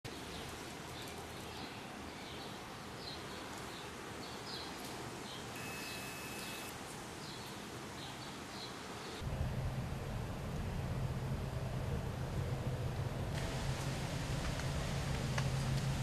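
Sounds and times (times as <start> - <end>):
cicadas humming: 5.5 - 6.8
short high chirps: 5.6 - 6.7
thin steady whistle: 5.6 - 6.7.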